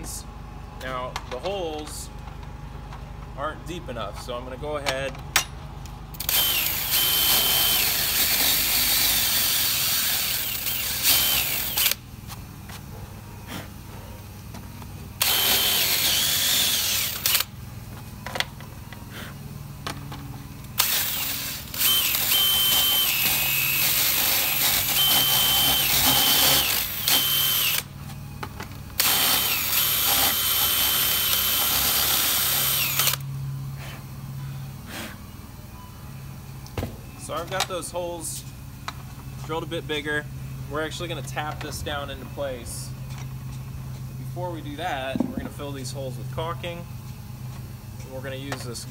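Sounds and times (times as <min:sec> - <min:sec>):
cordless drill boring holes: 0:06.2 - 0:12.0, 0:15.2 - 0:17.5, 0:20.8 - 0:27.9, 0:29.0 - 0:33.2.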